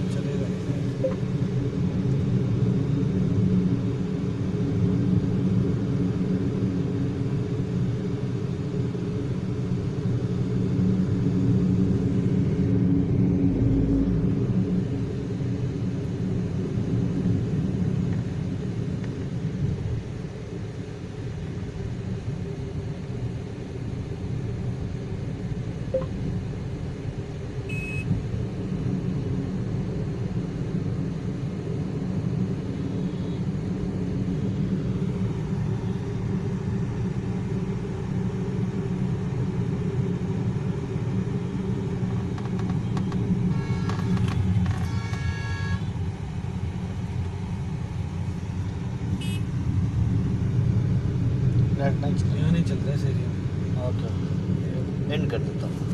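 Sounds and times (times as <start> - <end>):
car engine and tyre rumble: 0.0 - 55.9
high beep: 1.0 - 1.2, 27.7 - 28.1
vehicle horn: 43.5 - 44.2, 44.8 - 45.9, 49.2 - 49.5.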